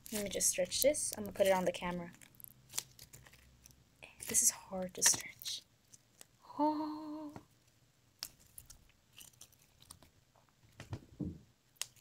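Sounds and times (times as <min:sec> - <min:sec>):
slime clicks and crackles: 0:00.0 - 0:06.4, 0:08.2 - 0:10.2, 0:11.7 - 0:12.0
person humming: 0:06.5 - 0:07.4.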